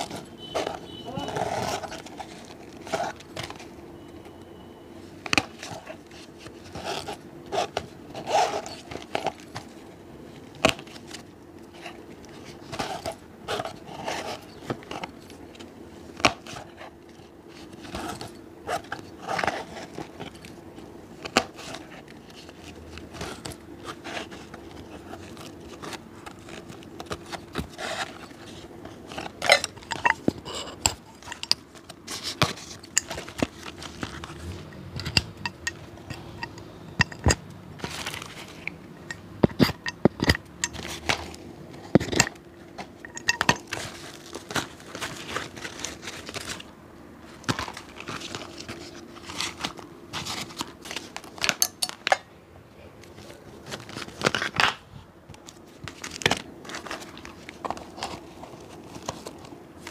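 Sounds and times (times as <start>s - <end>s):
faint steady hum: 0.0s - 59.9s
hand tools scraping and tapping shoe: 29.2s - 37.4s.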